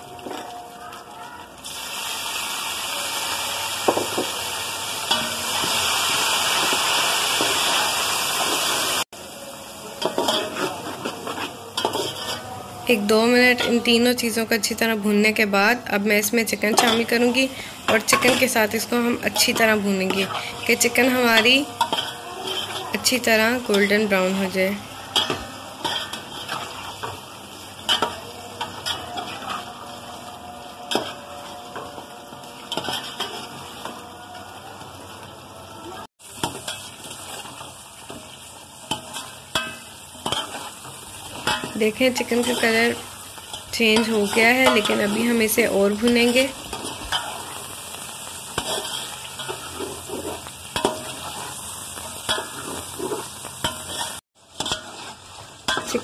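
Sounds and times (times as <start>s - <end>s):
chicken sizzling in hot oil: 1.1s - 56.0s
steel spoon scraping and clinking pot: 10.0s - 12.6s, 16.6s - 34.0s, 38.8s - 47.7s, 48.6s - 56.0s.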